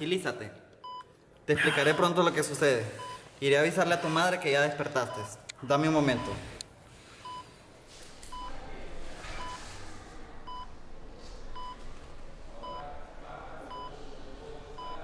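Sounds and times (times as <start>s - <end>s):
patient monitor beeping: 2.9s - 7.6s, 8.3s - 8.5s, 9.4s - 9.6s, 13.7s - 14.0s, 14.8s - 15.0s.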